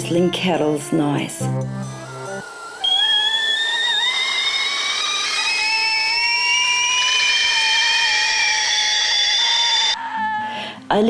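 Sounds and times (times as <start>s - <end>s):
kettles whistling: 1.8s - 10.0s.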